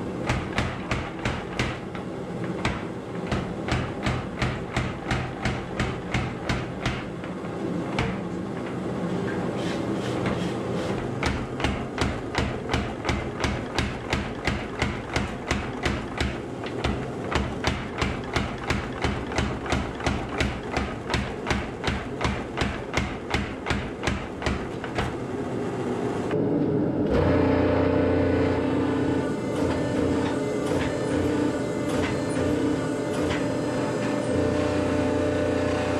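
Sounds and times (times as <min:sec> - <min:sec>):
power hammer striking steel: 0:00.0 - 0:08.7, 0:11.0 - 0:25.2, 0:28.2 - 0:35.9
hydraulic pump motor humming: 0:27.0 - 0:35.9.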